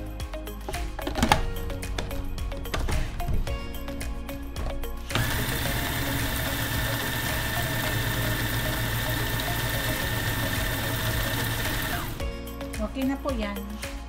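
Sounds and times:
food processor whining: 5.1s - 12.3s.

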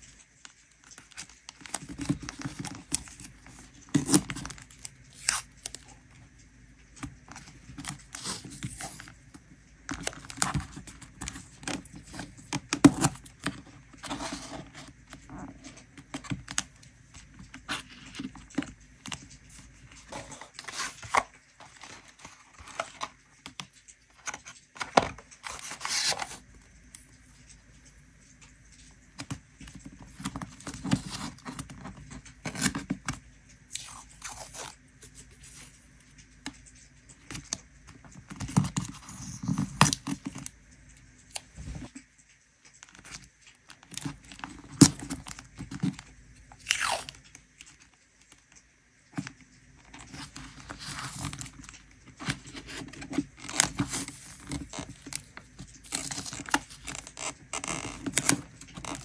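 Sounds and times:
paper scraping and crinkling: 0.5s - 6.0s, 7.0s - 16.6s, 17.2s - 26.6s, 29.2s - 33.2s, 49.2s - 59.0s.

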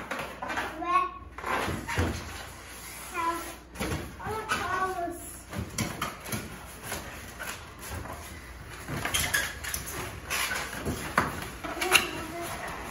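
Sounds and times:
balloons rubbing and squeaking: 1.4s - 5.1s, 6.6s - 12.9s.

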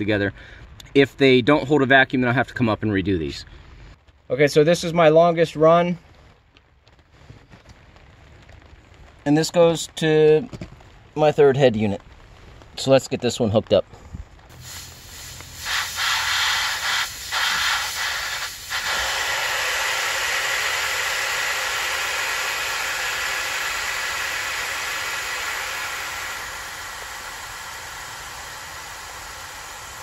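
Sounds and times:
gas hissing from fitting: 14.5s - 30.0s.

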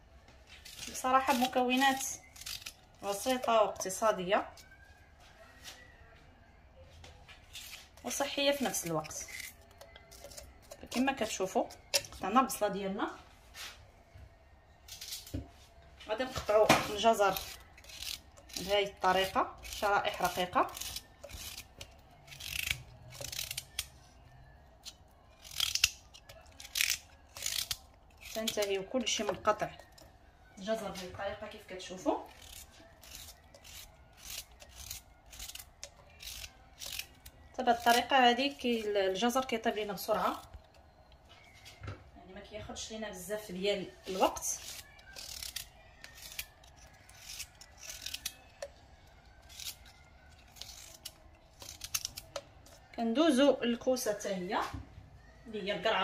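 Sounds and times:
knife cutting carrot: 0.6s - 4.7s, 16.2s - 24.0s, 24.8s - 30.0s, 44.0s - 52.9s.

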